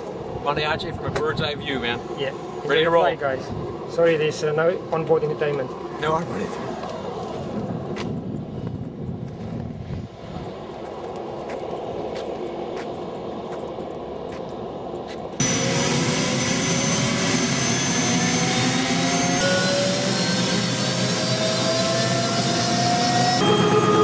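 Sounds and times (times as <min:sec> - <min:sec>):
helicopter turbine whine: 0:00.0 - 0:24.0
loud running hum: 0:00.0 - 0:24.0.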